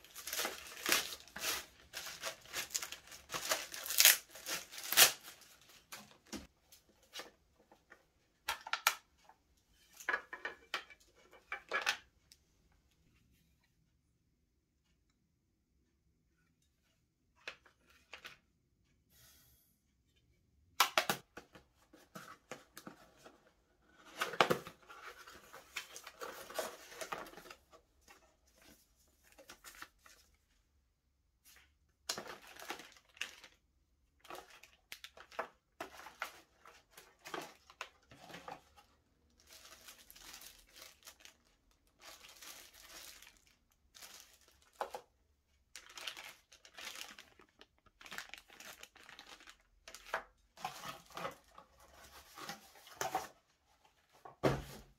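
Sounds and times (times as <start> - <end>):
plastic bags crinkling: 0.0 - 6.3, 32.1 - 33.6, 34.2 - 38.6, 39.3 - 45.1, 45.7 - 52.5.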